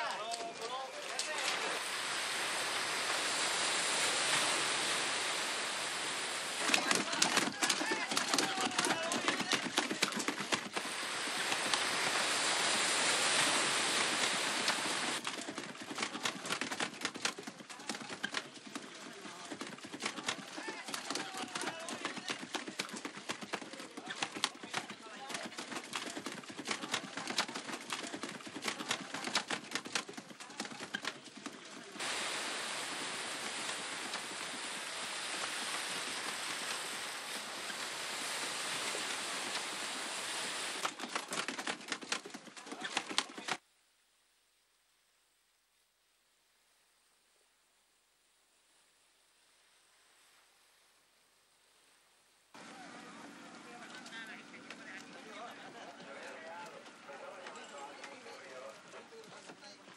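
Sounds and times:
sea waves breaking on shore: 0.0 - 17.2, 31.6 - 42.1
rush of splashing water: 0.0 - 43.6
fish slapping water: 0.4 - 43.6.

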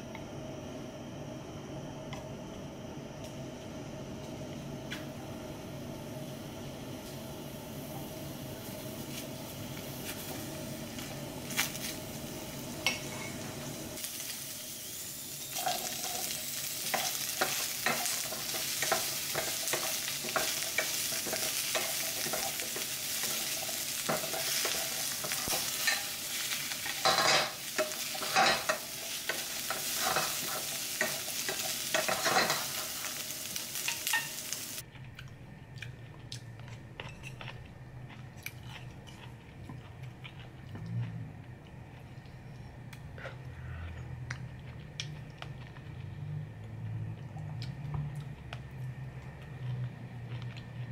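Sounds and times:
food sizzling in a frying pan: 6.0 - 34.8
spatula scraping a pan: 26.8 - 32.9.

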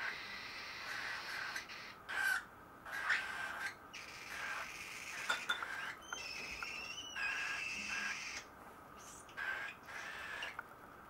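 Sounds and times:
baby cockatiels raspy begging calls: 0.0 - 10.6.

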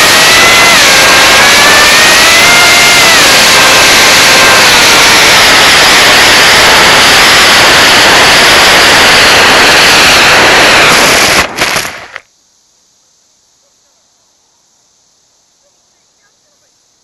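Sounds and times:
electric motor whine: 0.0 - 12.0
wind rushing: 0.0 - 12.1
faint hiss: 11.4 - 17.0.

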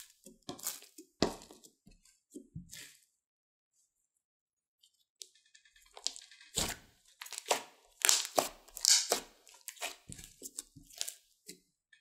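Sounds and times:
slime squishing by hand: 0.0 - 3.1, 5.7 - 11.6.

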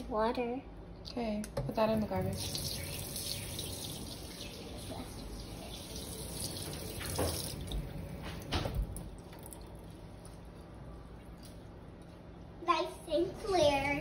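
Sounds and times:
tap running into metal sink: 5.8 - 9.5.

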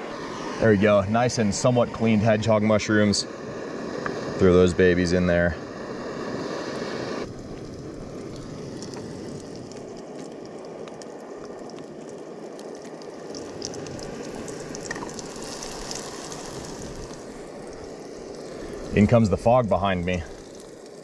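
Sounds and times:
mushrooms sizzling in butter: 5.7 - 21.0
crackling pops: 7.2 - 18.4.

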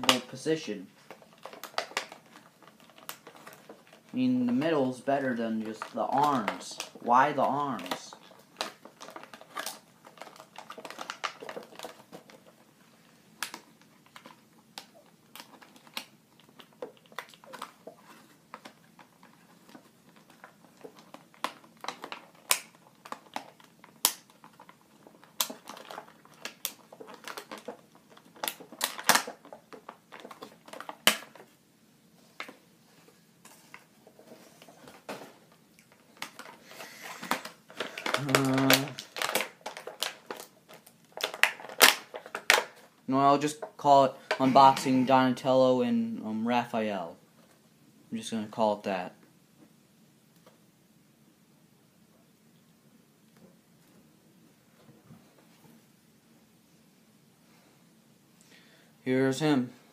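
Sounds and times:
packaging rustling: 0.9 - 45.1.

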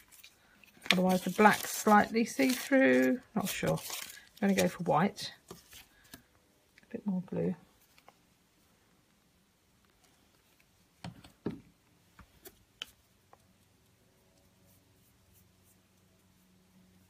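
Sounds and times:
paintbrush brushing glue on card: 12.9 - 17.0.

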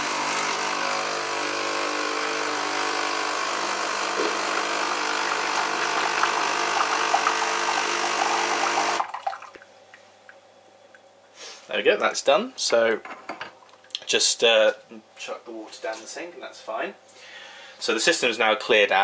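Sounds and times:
coffee machine pump running: 0.0 - 9.1.

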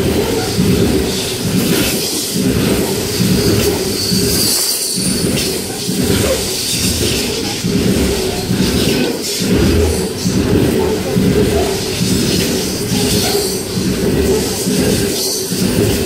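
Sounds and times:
steel wheels rumbling on rails: 0.0 - 16.0
brief high squeal: 4.0 - 5.2.

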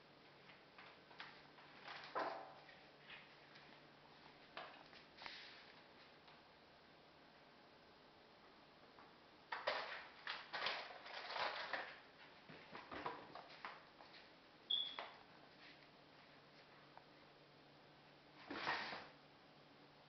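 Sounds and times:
rustling crinkly packaging: 9.6 - 12.1.

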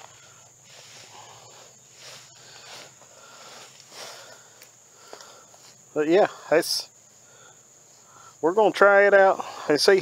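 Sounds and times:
soft rustles: 0.0 - 5.9
high-pitched insect chorus: 0.0 - 10.0.

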